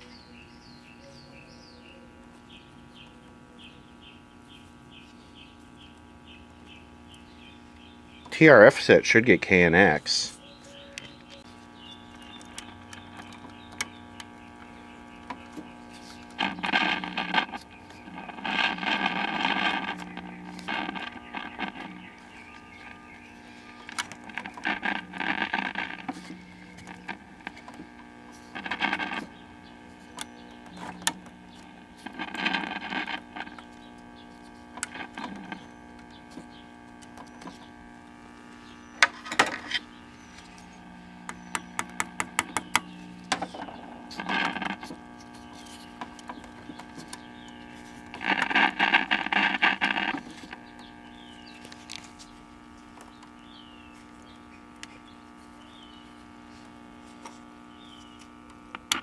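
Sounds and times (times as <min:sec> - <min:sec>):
radio speaker humming: 0:00.0 - 0:59.0
radio static and crackle: 0:00.0 - 0:59.0
sharp clicks: 0:39.8 - 0:53.5.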